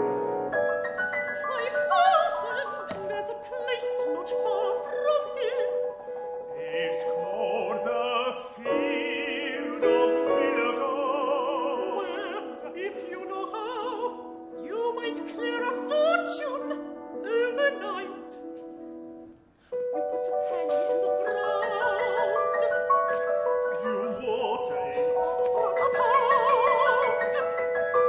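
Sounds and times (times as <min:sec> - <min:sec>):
piano accompaniment: 0:00.0 - 0:28.0
operatic voices singing: 0:20.4 - 0:27.9.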